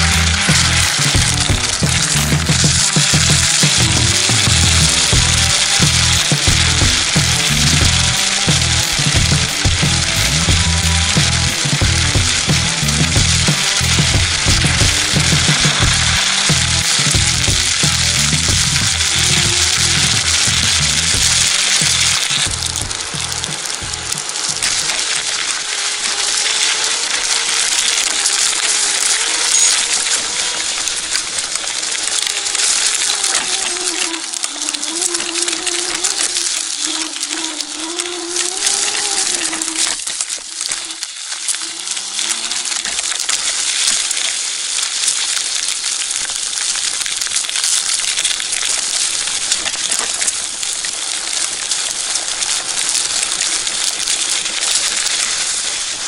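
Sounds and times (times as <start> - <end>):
tyres crunching over dirt and stones: 0.0 - 34.8
electric motor whine: 0.0 - 43.3.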